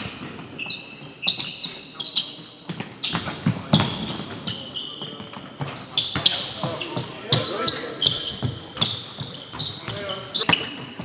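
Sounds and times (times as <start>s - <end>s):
sneakers squeaking on floor: 0.0s - 11.0s.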